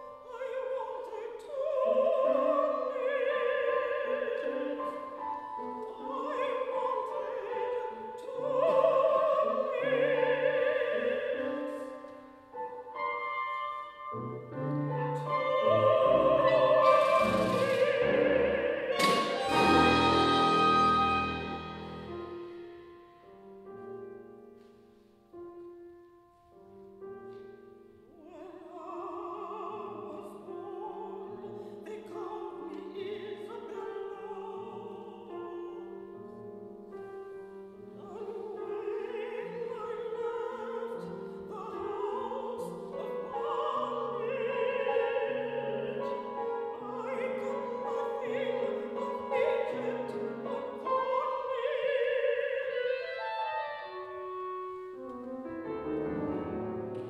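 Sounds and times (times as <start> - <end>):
soprano singing with vibrato: 0.0 - 23.3, 28.2 - 36.3, 37.3 - 55.8
chamber ensemble with piano: 0.0 - 57.0.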